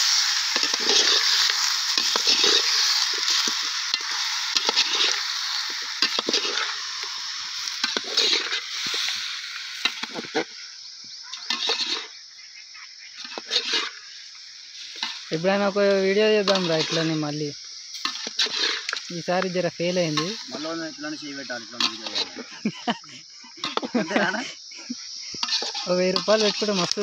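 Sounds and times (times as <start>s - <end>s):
chicken sizzling in a pot: 0.0s - 23.0s, 24.9s - 27.0s.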